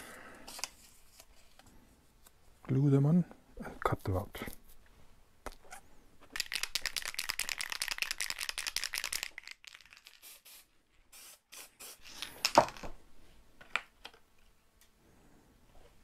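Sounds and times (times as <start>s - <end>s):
aerosol can hissing: 10.2s - 12.2s.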